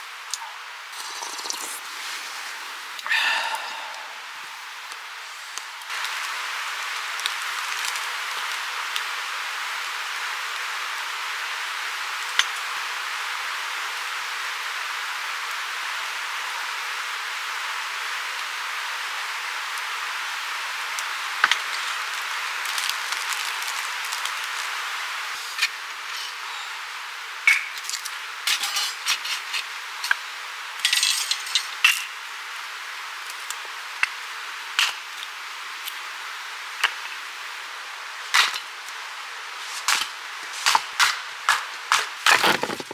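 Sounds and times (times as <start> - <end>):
steady outdoor hiss: 0.0 - 42.9
sharp cracks and clicks: 39.9 - 42.9.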